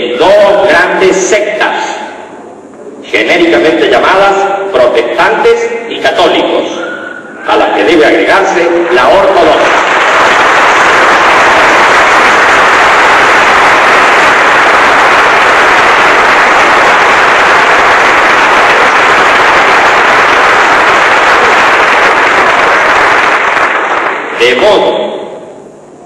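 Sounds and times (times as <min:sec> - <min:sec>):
audience applauding: 0:08.8 - 0:24.5.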